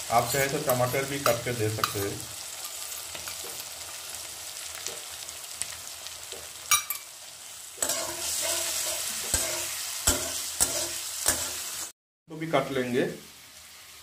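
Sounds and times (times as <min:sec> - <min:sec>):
vegetables sizzling in oil: 0:00.0 - 0:14.0
wooden spatula scraping pan: 0:07.8 - 0:11.6.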